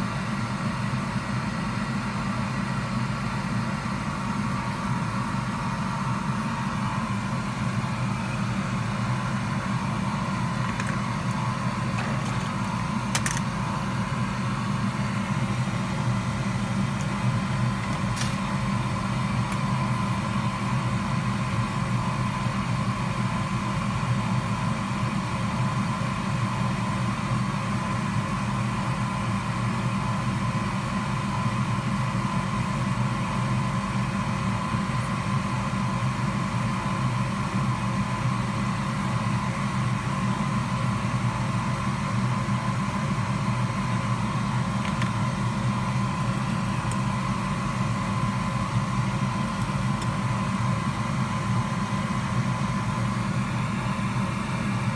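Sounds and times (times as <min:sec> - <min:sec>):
faint high whine: 0:00.0 - 0:22.5
electric fan motor humming: 0:00.0 - 0:54.9.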